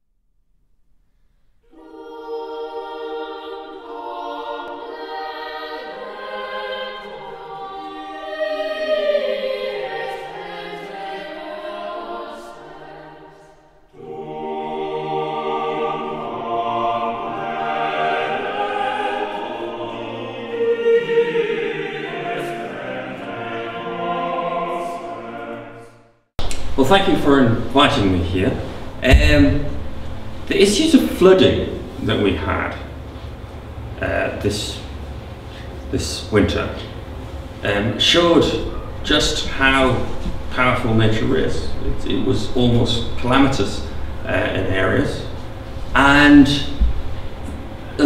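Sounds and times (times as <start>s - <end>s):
choir singing: 1.6s - 26.3s, 29.0s - 30.9s.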